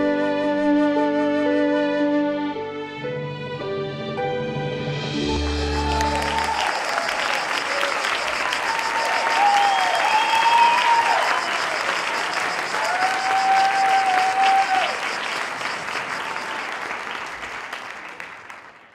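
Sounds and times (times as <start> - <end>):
cheering calls: 5.3 - 18.8
audience applauding: 5.3 - 18.9.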